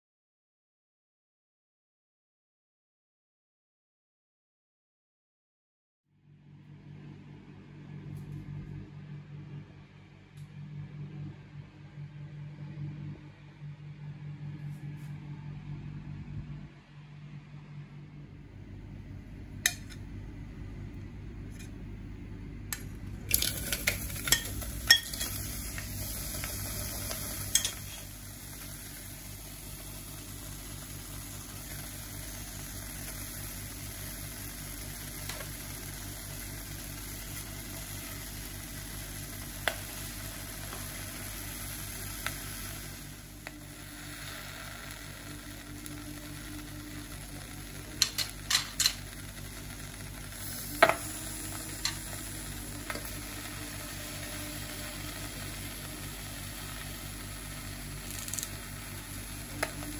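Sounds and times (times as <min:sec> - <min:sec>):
steady hiss: 0:23.3 - 0:59.9.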